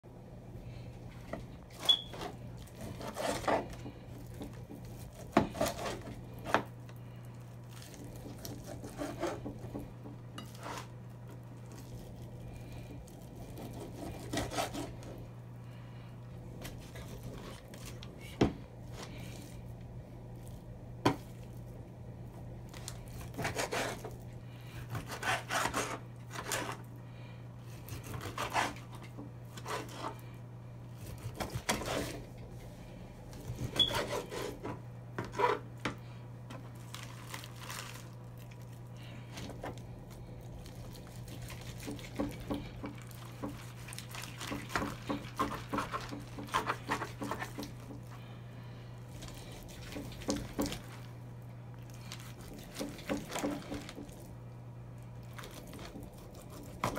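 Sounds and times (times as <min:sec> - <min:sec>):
meat grinder scraping: 0:01.6 - 0:15.3, 0:22.7 - 0:26.9, 0:27.7 - 0:30.3, 0:40.5 - 0:48.2.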